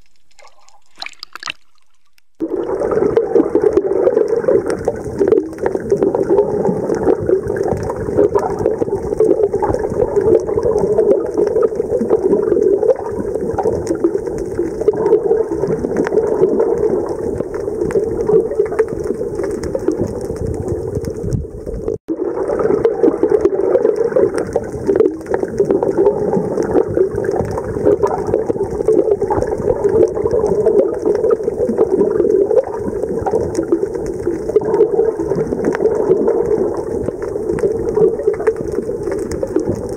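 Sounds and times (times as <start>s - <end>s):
underwater rush of water: 0.0s - 39.9s.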